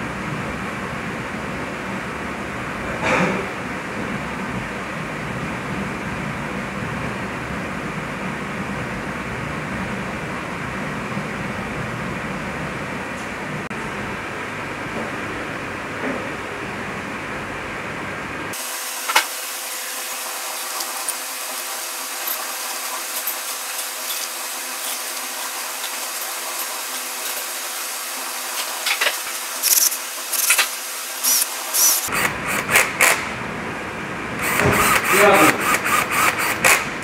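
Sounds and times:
metal parts and tools clicking: 0:22.2 - 0:25.2.

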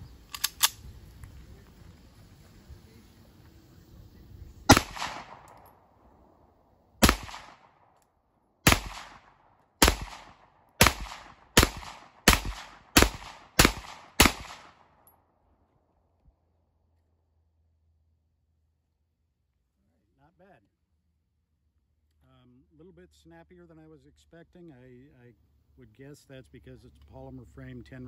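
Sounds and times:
pistol shots with echo: 0:04.7 - 0:05.9, 0:07.0 - 0:07.9, 0:08.6 - 0:15.0.

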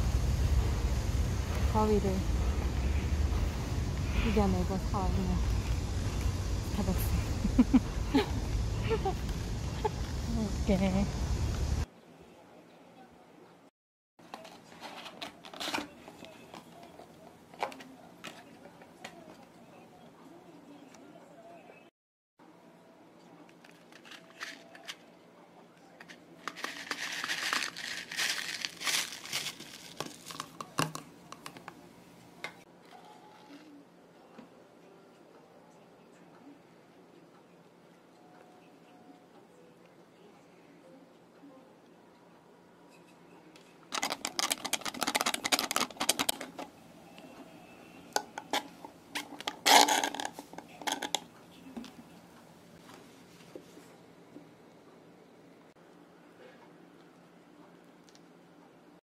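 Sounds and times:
plastic rustle: 0:26.4 - 0:30.9, 0:43.9 - 0:46.7, 0:48.5 - 0:51.2
plastic cup crinkling: 0:26.4 - 0:31.7, 0:43.9 - 0:46.7, 0:48.2 - 0:51.3.

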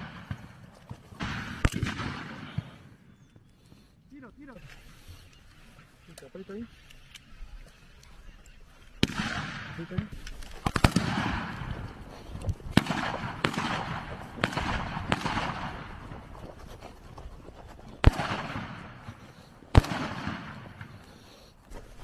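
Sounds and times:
rifle shots with echo: 0:00.0 - 0:03.2, 0:08.9 - 0:16.3, 0:18.0 - 0:21.1.

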